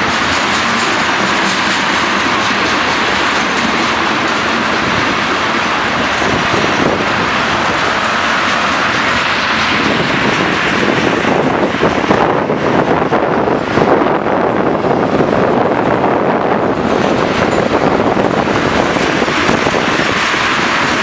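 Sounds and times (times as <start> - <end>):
steel wheels running on rails: 0.0 - 21.0.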